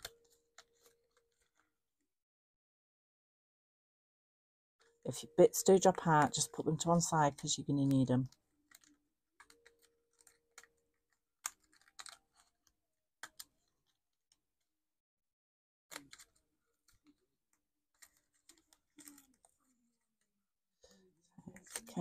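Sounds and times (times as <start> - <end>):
card crackling and clicking: 6.0 - 14.4, 15.9 - 20.3, 21.4 - 22.0.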